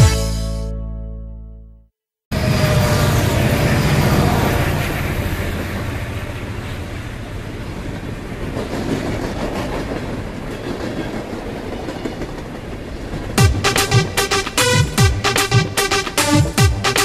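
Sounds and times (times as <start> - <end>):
train rumbling and rattling: 2.5 - 13.4.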